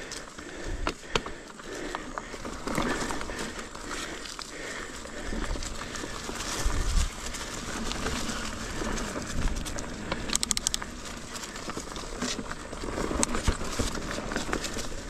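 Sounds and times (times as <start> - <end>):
bike tyres on dirt and roots: 0.0 - 15.0
quick run of clicks: 5.6 - 15.0.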